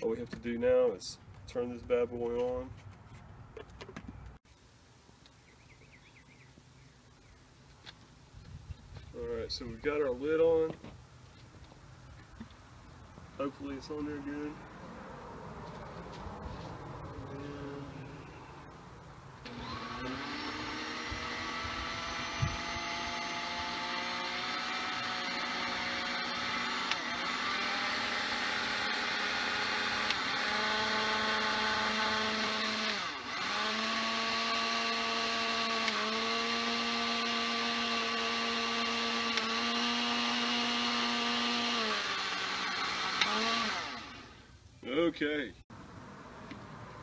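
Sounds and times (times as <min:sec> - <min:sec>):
blender motor running: 0:19.4 - 0:44.4.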